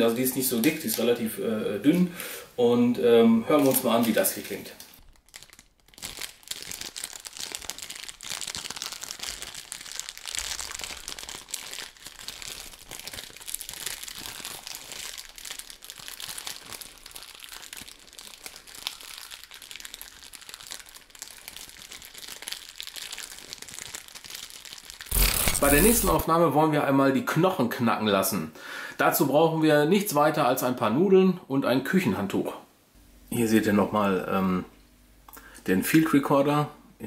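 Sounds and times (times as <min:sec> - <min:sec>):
plastic film crinkling: 0:03.6 - 0:26.2.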